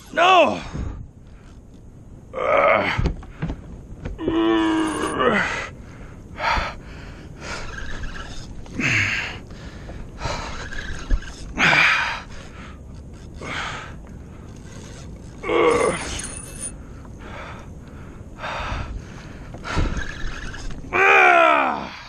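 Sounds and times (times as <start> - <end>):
man breathing hard: 5.3 - 7.6, 16.8 - 20.0.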